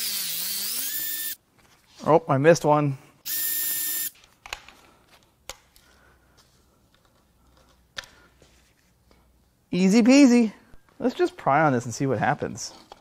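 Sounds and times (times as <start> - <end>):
electric ratchet spinning: 0.0 - 1.4, 3.3 - 4.1.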